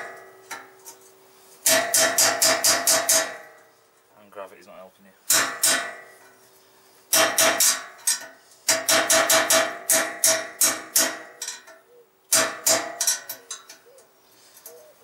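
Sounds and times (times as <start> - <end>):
hammer striking steel rod: 1.6 - 3.5, 5.3 - 6.1, 7.1 - 11.5, 12.3 - 13.3.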